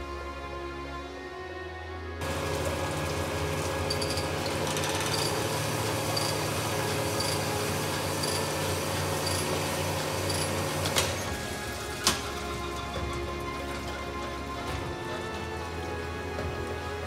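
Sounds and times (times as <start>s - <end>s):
honing machine motor hum: 2.2s - 12.0s.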